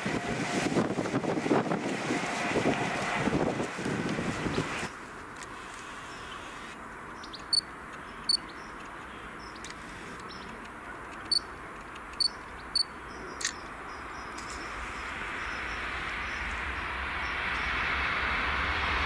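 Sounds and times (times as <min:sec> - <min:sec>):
distant train rushing: 0:00.0 - 0:05.7, 0:11.3 - 0:19.0
bird chirping: 0:07.1 - 0:10.6, 0:11.2 - 0:14.8.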